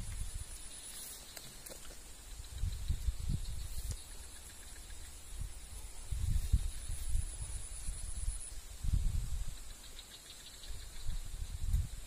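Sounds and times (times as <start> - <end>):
wind buffeting microphone: 2.3 - 9.8, 10.6 - 12.0.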